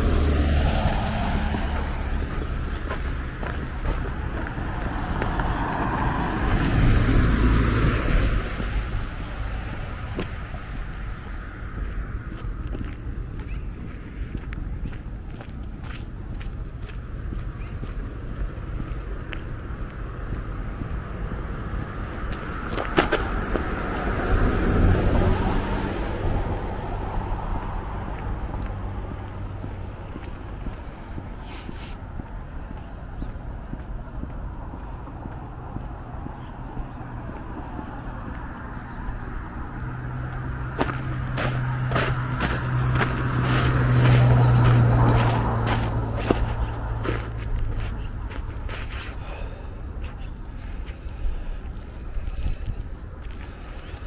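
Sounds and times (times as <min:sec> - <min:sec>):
car driving past: 0:00.0 - 0:02.9, 0:04.6 - 0:10.1, 0:37.1 - 0:48.0.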